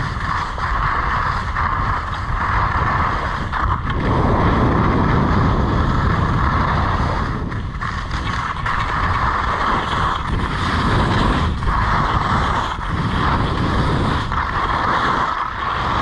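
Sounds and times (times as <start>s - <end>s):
skis hissing on packed snow: 0.0s - 16.0s
wind rushing over microphone: 0.0s - 16.0s.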